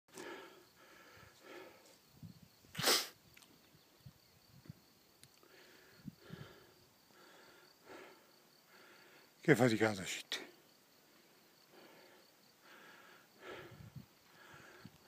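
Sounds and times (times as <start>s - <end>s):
person breathing heavily: 0.1s - 2.1s, 5.4s - 9.4s, 11.0s - 15.0s
faint insect trill: 0.2s - 15.0s
sharp burst of breath: 2.7s - 3.2s.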